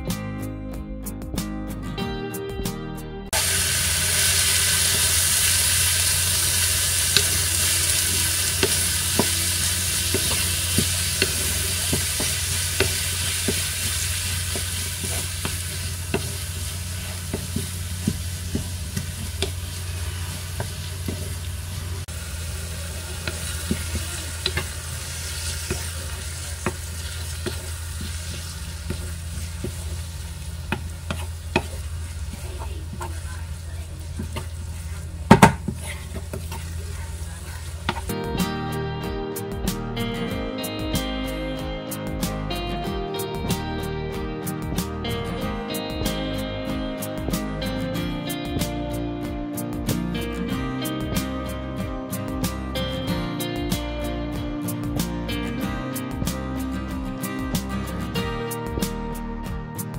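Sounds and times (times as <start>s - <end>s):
vegetables sizzling in oil: 3.3s - 38.6s
wooden spatula scraping pan: 30.7s - 38.1s.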